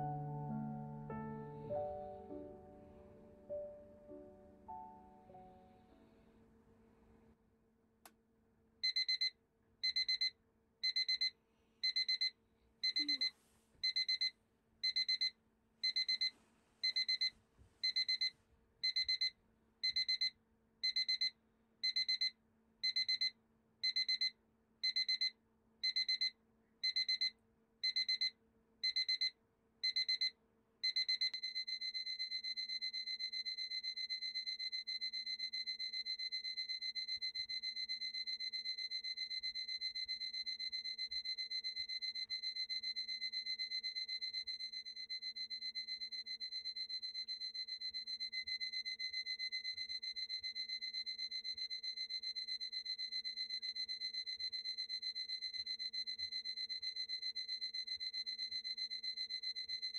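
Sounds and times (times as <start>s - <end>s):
continuous alarm tone: 8.8s - 29.3s, 29.9s - 59.9s
electronic alarm beeping: 8.8s - 29.3s, 30.9s - 59.9s.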